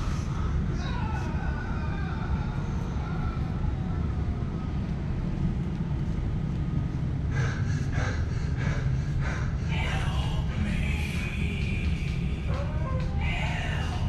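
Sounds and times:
low rumble of background noise: 0:00.0 - 0:14.0
music with rhythmic pulses: 0:09.8 - 0:14.0.

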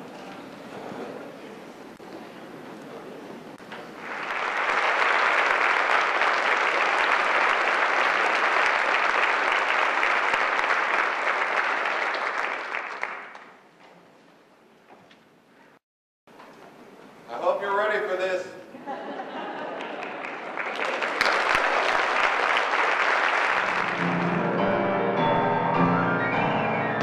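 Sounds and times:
audience applauding: 0:03.6 - 0:13.6, 0:19.4 - 0:24.9, 0:25.9 - 0:27.0.

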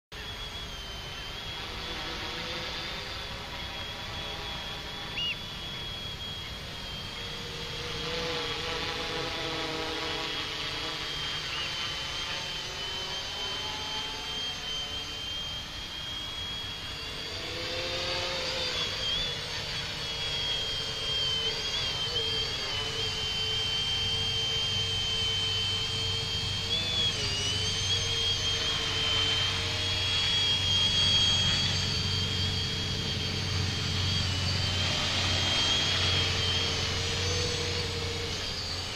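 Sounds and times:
quadcopter propellers whining: 0:00.1 - 0:38.9.

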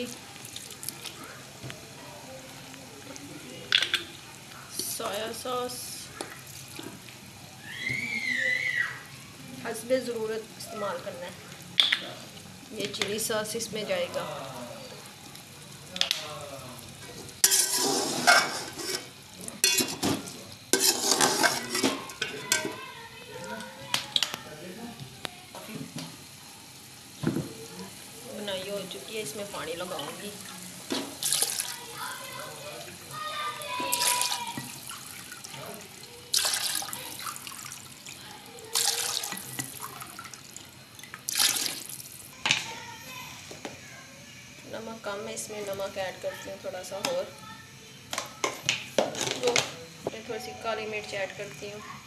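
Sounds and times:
food sizzling in a pot: 0:00.0 - 0:52.0
metal spoon scraping a pot: 0:17.4 - 0:22.7
liquid sloshing in a metal pot: 0:17.4 - 0:22.8, 0:30.8 - 0:31.8, 0:33.9 - 0:42.6.

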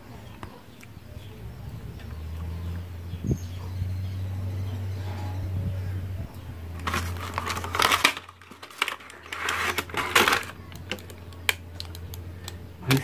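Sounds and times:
cardboard box rustling and scraping: 0:06.8 - 0:10.6
plastic tray clicks: 0:06.8 - 0:13.0.

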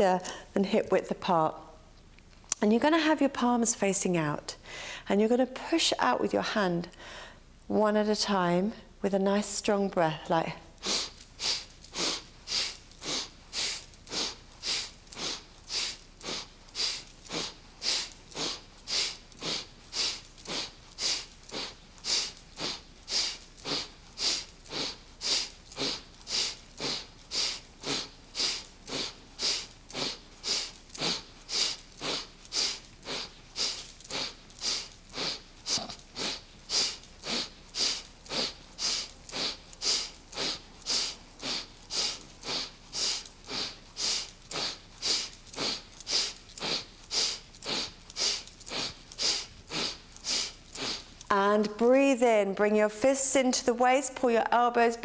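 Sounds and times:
woman's forceful breaths: 0:04.6 - 0:05.1, 0:06.9 - 0:07.5, 0:10.8 - 0:51.2.

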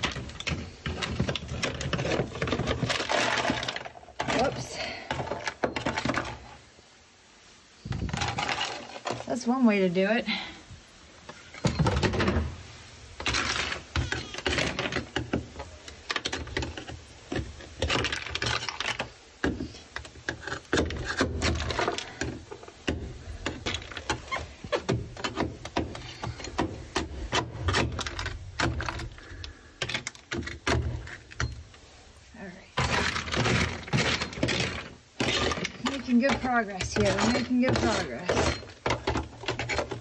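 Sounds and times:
hand tool chipping brittle mat: 0:32.8 - 0:40.0.

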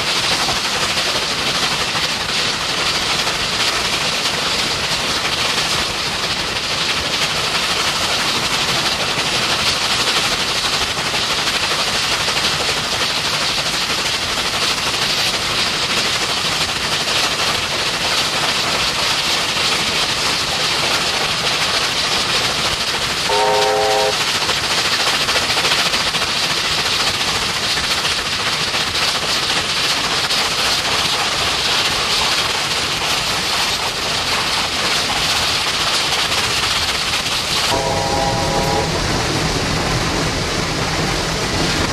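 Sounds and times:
steam locomotive running: 0:00.0 - 0:41.9
steam whistle blast: 0:23.3 - 0:24.2, 0:37.7 - 0:39.2.

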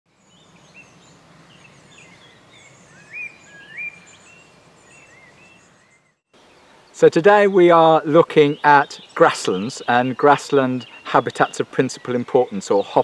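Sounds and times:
small birds singing: 0:00.1 - 0:13.0
upswept bird whistles: 0:02.9 - 0:04.3.

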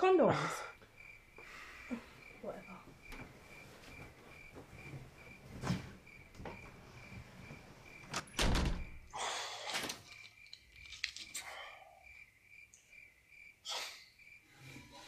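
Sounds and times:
rustling: 0:02.8 - 0:08.2
door banging shut: 0:08.0 - 0:09.1.

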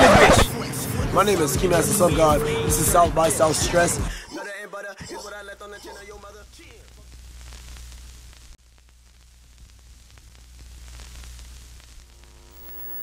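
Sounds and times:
television static hiss: 0:06.0 - 0:13.0
buzzing tone: 0:07.1 - 0:13.0.

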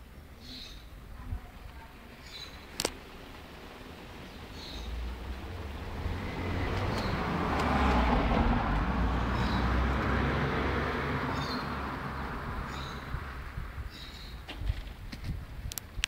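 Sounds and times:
vehicle driving past: 0:03.5 - 0:13.8.

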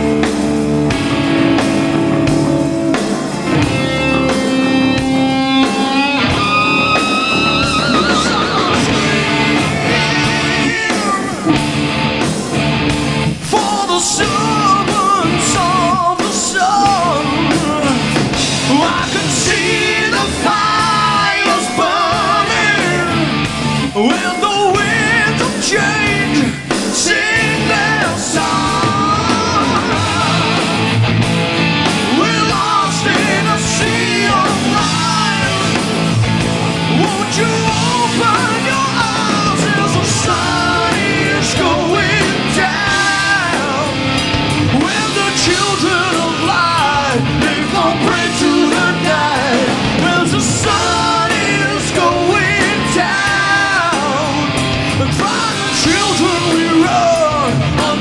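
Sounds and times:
drums: 0:00.0 - 0:58.0
electric guitar: 0:00.0 - 0:58.0
lead vocals: 0:00.0 - 0:58.0.

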